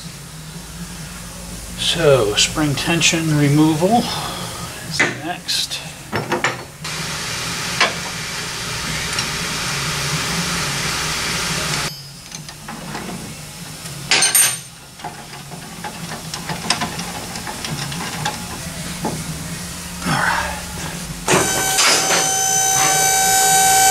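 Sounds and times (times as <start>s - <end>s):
metal tools clinking: 14.1s - 18.4s
pneumatic tool hissing: 21.3s - 23.9s.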